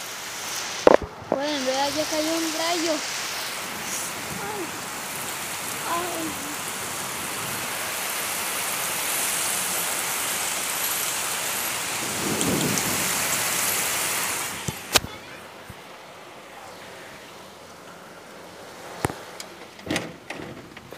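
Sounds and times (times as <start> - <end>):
heavy rain pouring: 0.0 - 20.9
low rumble of thunder: 11.8 - 13.8.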